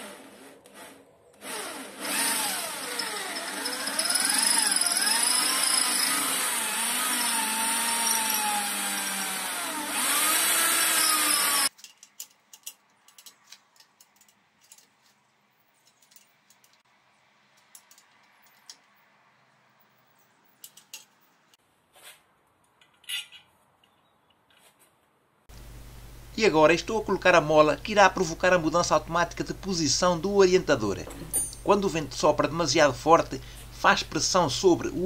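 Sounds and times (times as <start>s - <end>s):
electric drill boring into metal: 1.4s - 11.7s
metal parts and tools clicking: 11.7s - 15.0s, 15.7s - 16.8s, 17.6s - 19.0s, 20.1s - 21.3s, 22.8s - 24.6s, 31.1s - 31.8s.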